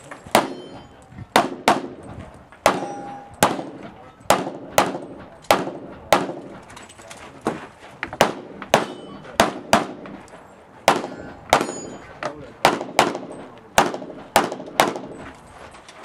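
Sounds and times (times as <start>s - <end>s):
pistol shots echoing: 0.3s - 6.7s, 8.2s - 10.2s, 10.8s - 12.0s, 12.6s - 15.2s.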